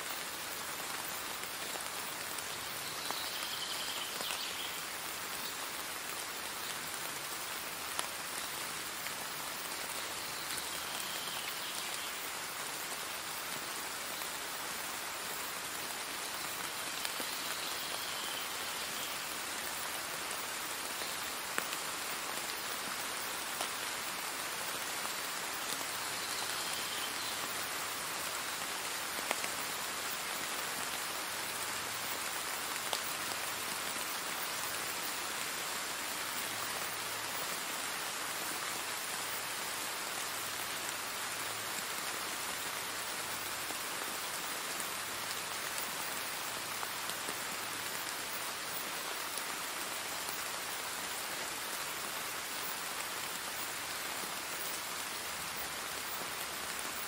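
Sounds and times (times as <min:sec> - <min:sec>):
steady rain hiss: 0:00.0 - 0:57.0.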